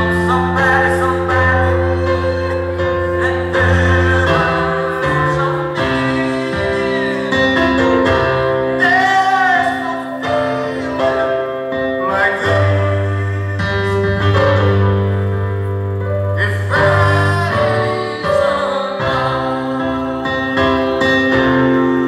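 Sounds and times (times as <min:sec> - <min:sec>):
electronic keyboard chords: 0:00.0 - 0:22.0.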